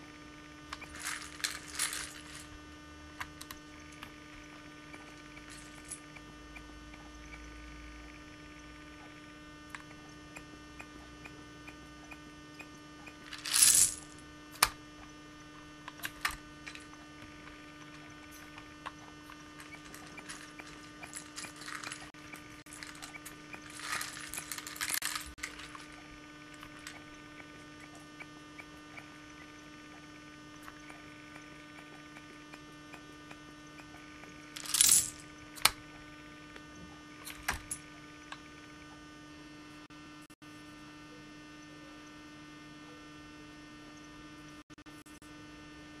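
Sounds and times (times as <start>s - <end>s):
low electrical hum: 0.0s - 46.0s
plastic bricks rattling and clicking: 0.7s - 2.6s, 13.2s - 14.7s, 19.6s - 26.0s, 34.6s - 35.8s.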